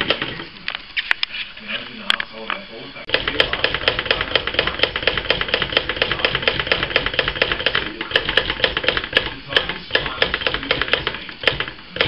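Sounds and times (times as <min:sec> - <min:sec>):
typewriter clicking: 0:00.0 - 0:00.5, 0:03.1 - 0:12.0.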